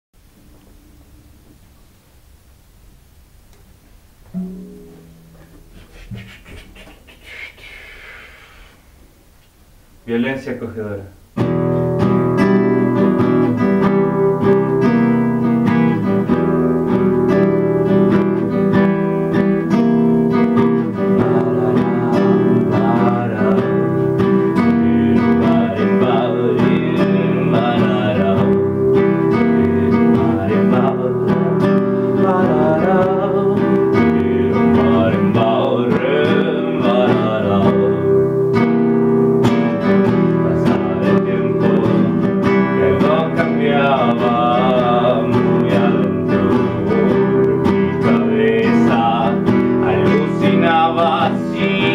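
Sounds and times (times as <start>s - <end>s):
acoustic guitar chords: 0.2s - 10.2s, 11.2s - 51.9s
man singing: 20.4s - 38.5s, 39.4s - 51.9s.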